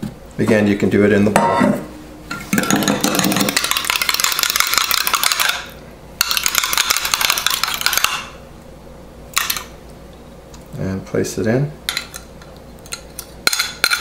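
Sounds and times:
fork beating eggs in glass cup: 2.6s - 8.3s.

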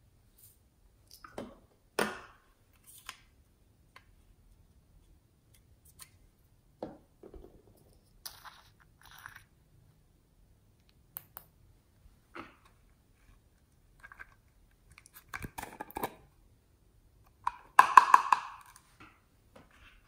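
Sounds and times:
plastic toys clicking and knocking: 17.3s - 18.8s.

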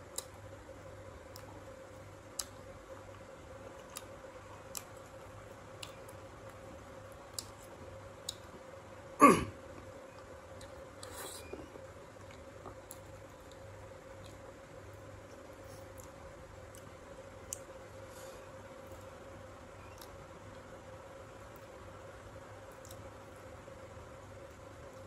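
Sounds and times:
low steady hum: 0.0s - 25.0s
loud short throat sound: 9.2s - 9.6s
soft breathy noise: 17.9s - 18.7s.

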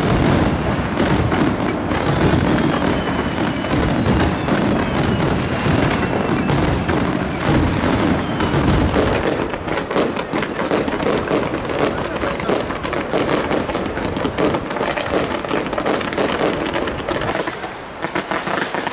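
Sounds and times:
fireworks bursting and crackling: 0.0s - 18.9s.

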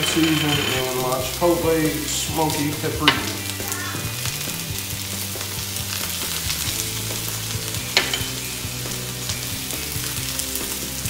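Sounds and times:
vegetables sizzling in a frying pan: 0.0s - 11.0s
pan knock: 7.9s - 8.4s.

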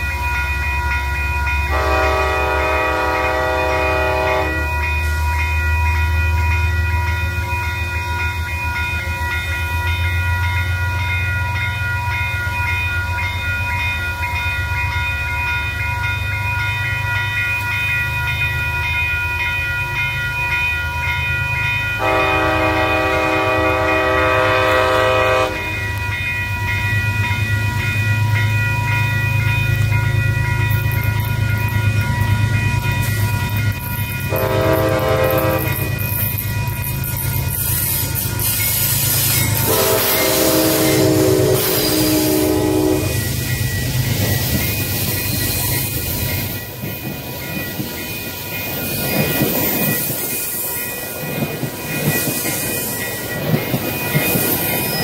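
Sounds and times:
diesel locomotive rumbling: 0.0s - 55.0s
locomotive whine: 0.0s - 55.0s
train horn blasts: 1.7s - 4.8s, 22.0s - 25.8s, 34.3s - 36.0s, 39.6s - 43.3s.

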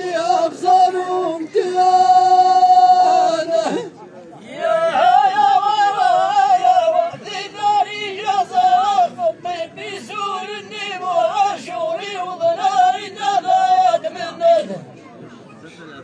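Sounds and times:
men chanting sung poetry: 0.0s - 14.8s.

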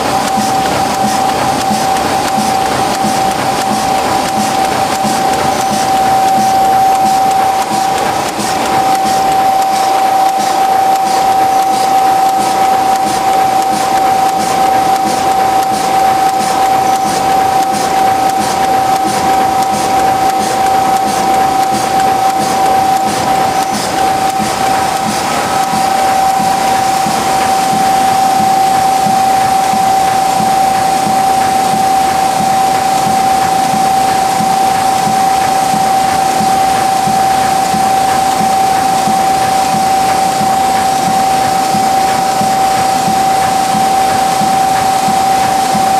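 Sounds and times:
machine whirring: 0.0s - 45.9s
steady whine: 0.0s - 45.9s.

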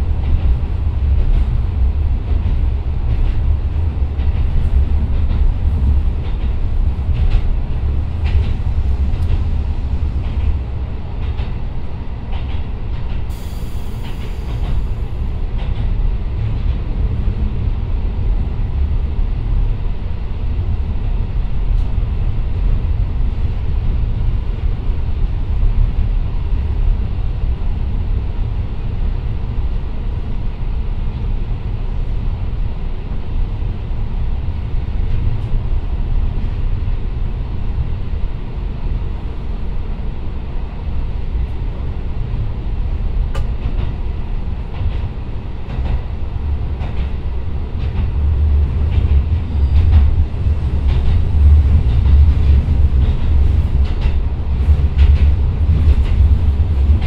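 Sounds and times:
railcar engine and wheels rumbling: 0.0s - 57.0s.

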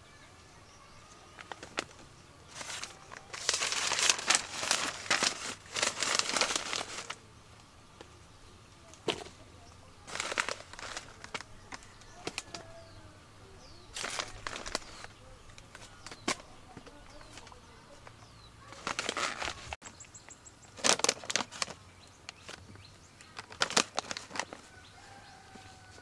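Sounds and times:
bursts of rustling: 1.2s - 7.2s, 10.0s - 12.9s, 13.9s - 19.8s.

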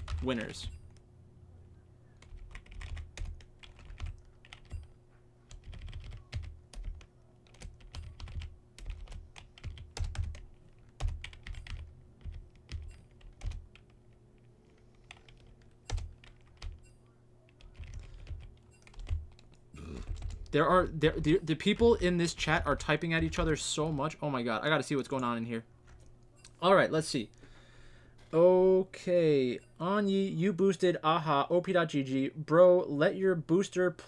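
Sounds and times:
computer keyboard typing: 0.0s - 1.0s, 2.2s - 24.2s.

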